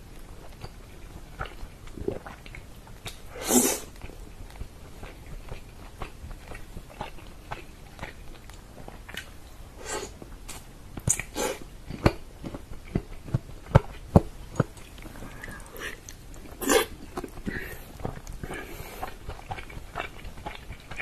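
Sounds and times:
wet chewing and slurping: 0:00.1 - 0:21.0.

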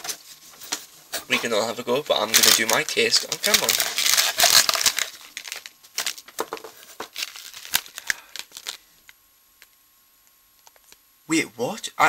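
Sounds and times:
snack packaging crinkling: 0:01.4 - 0:09.8.

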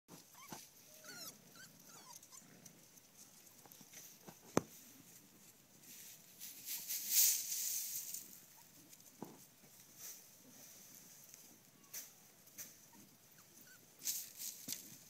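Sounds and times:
puppies whimpering and yipping: 0:00.2 - 0:02.6, 0:12.8 - 0:14.0.

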